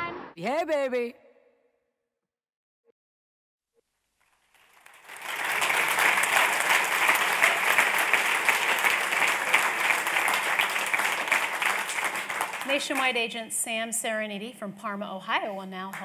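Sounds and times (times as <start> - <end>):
audience applause: 4.4 - 13.3.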